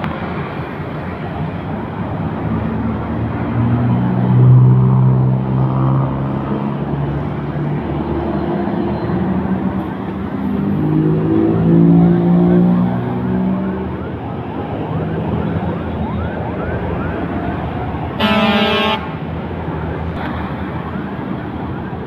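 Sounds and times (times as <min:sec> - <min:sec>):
truck diesel engine passing: 0:00.0 - 0:22.0
truck horn blast: 0:18.2 - 0:19.2.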